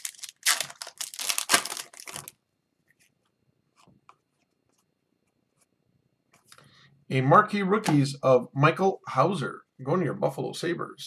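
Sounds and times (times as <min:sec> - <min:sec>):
foil wrapper ripping and crinkling: 0:00.0 - 0:02.4.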